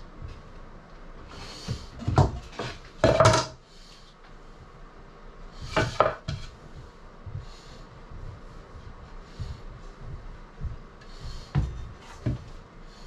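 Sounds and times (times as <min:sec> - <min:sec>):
wood and tools clattering: 0:01.9 - 0:03.6.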